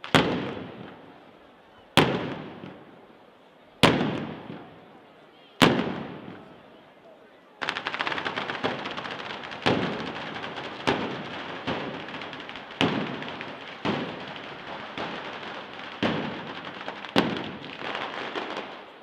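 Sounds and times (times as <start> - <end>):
firecrackers crackling: 0.0 - 5.0, 5.6 - 6.7, 7.6 - 19.0
loud bangs: 7.6 - 18.7.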